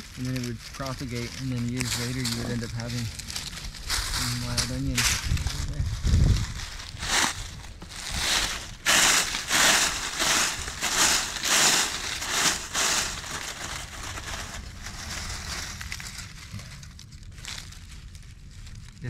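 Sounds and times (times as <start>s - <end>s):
dry leaves crunching and rustling: 0.0s - 19.0s.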